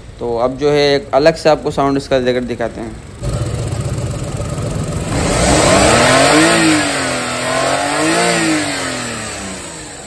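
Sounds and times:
car engine idling and revving: 2.9s - 10.0s.

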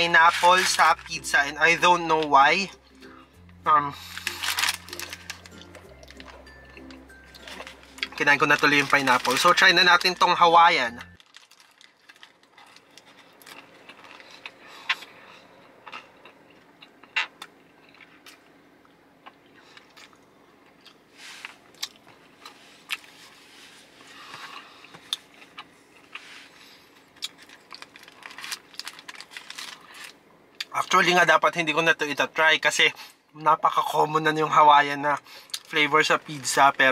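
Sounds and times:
crunchy biting and chewing: 4.0s - 9.6s, 11.2s - 18.6s, 24.2s - 30.7s.

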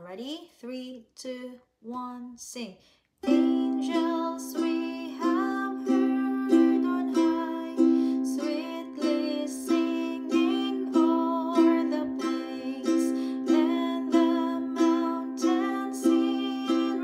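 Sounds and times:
person singing: 3.2s - 17.0s
ukulele strumming: 3.2s - 17.0s.

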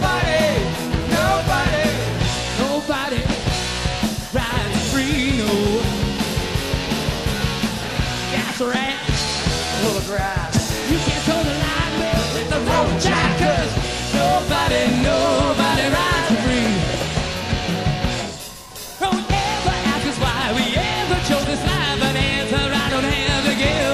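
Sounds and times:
person singing: 0.0s - 3.4s, 9.8s - 17.0s, 19.0s - 23.9s
distorted electric guitar: 0.0s - 23.9s
live hard rock band: 0.0s - 23.9s.

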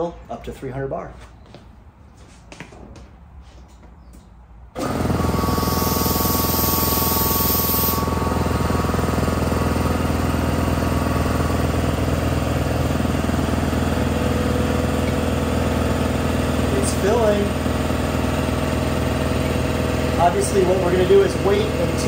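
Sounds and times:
air compressor running: 4.8s - 22.0s
air hissing: 5.4s - 8.2s.

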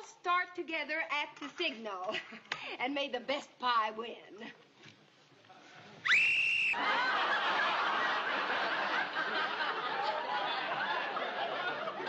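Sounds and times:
whistle blast rising in pitch: 6.1s - 6.8s
audience laughing: 6.8s - 12.0s.

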